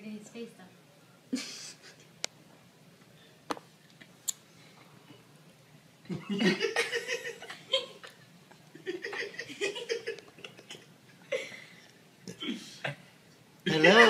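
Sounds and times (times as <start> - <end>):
person laughing: 1.3 - 2.0.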